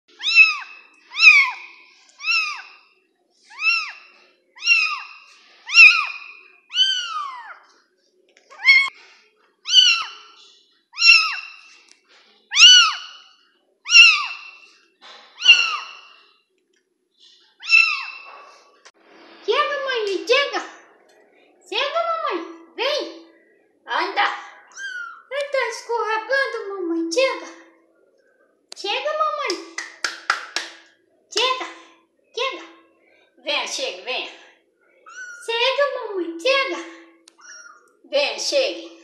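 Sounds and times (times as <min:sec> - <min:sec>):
kitten meowing: 0:00.2 - 0:01.6, 0:02.2 - 0:02.7, 0:03.5 - 0:04.0, 0:04.6 - 0:05.1, 0:05.7 - 0:07.6, 0:08.5 - 0:08.9, 0:09.7 - 0:10.2, 0:11.0 - 0:11.5, 0:12.5 - 0:13.2, 0:13.9 - 0:14.5, 0:15.4 - 0:16.1, 0:17.6 - 0:18.3, 0:24.7 - 0:25.2, 0:35.1 - 0:35.4, 0:37.3 - 0:37.9.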